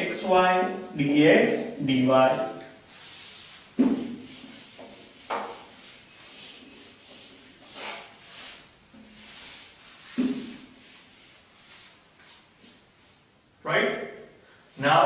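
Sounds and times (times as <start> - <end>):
eraser swishing on whiteboard: 2.8 - 12.8.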